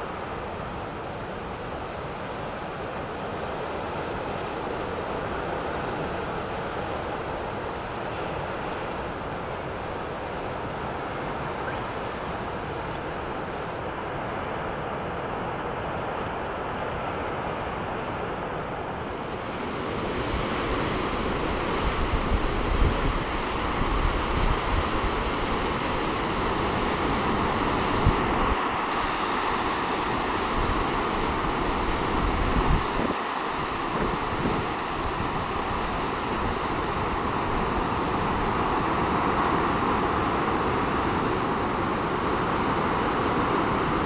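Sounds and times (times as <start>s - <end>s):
ocean surf over rocks: 0.0s - 44.0s
wind gusting on microphone: 17.0s - 44.0s.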